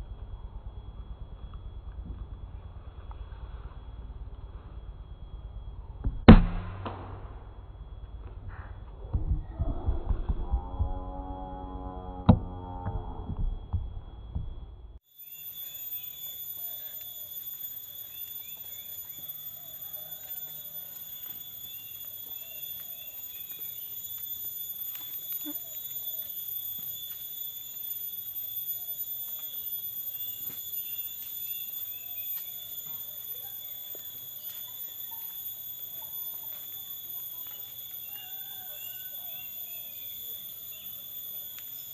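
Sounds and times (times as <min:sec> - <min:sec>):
high-pitched insect drone: 0:15.0 - 0:41.9
bird chirps: 0:15.2 - 0:26.8, 0:28.8 - 0:36.2, 0:37.4 - 0:41.9
footsteps on dirt path: 0:16.2 - 0:27.9, 0:30.4 - 0:36.8.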